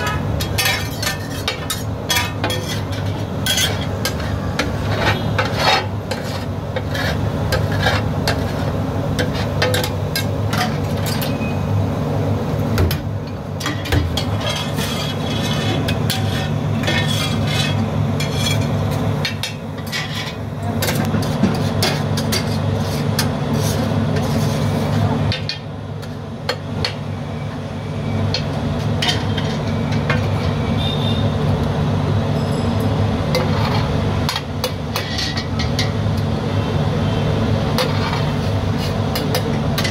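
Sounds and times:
metal spatula scraping griddle: 0.0 - 11.5, 13.6 - 26.1, 28.3 - 30.6, 33.3 - 36.0, 37.7 - 39.9.

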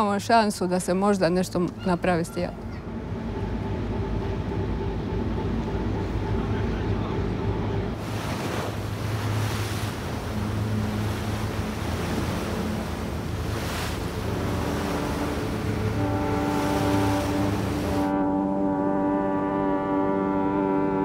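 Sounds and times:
low engine hum: 0.0 - 21.0
wind: 0.0 - 21.0
water rushing in ship's wake: 5.1 - 18.2
deep horn chord: 8.9 - 21.0.

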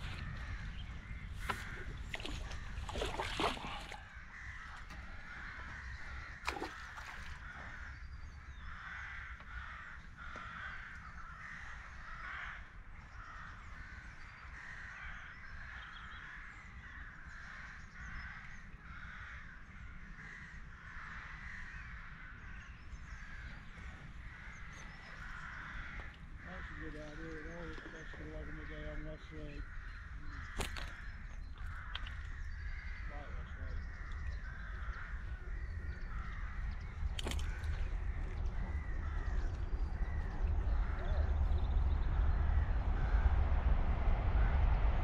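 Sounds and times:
steady low rumble: 0.0 - 6.5, 22.9 - 45.0
crows cawing: 0.0 - 43.4.

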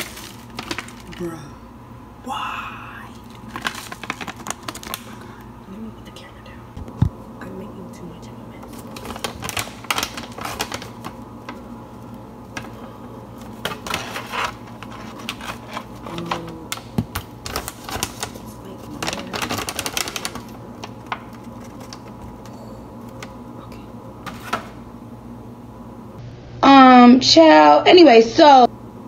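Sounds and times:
plastic pouch crinkling: 0.0 - 1.3, 3.1 - 5.5, 8.6 - 12.7, 13.4 - 22.4.

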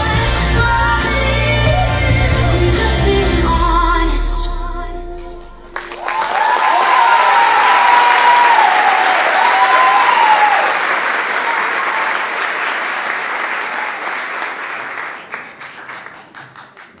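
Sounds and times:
audience applause: 5.7 - 17.0
cheering whoops: 5.8 - 12.6.

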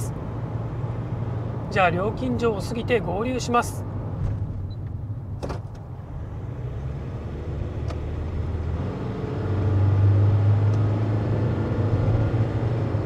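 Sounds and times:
diesel engine accelerating: 0.0 - 13.0.

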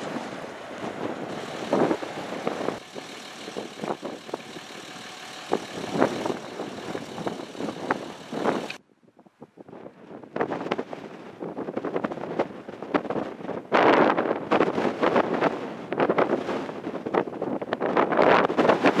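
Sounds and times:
jet airliner rumble: 0.0 - 8.8
wind buffeting microphone: 0.0 - 19.0.

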